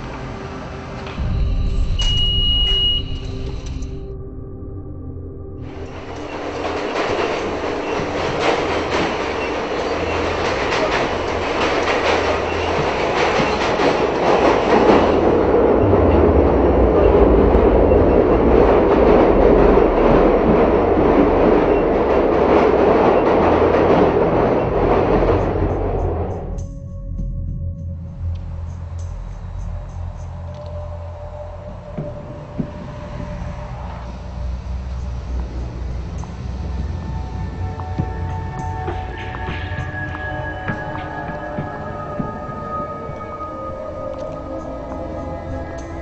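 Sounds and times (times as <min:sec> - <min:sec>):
subway train rushing: 0:00.0 - 0:04.2, 0:05.5 - 0:26.6, 0:27.9 - 0:46.0
wheels clattering over rail joints: 0:05.7 - 0:26.5.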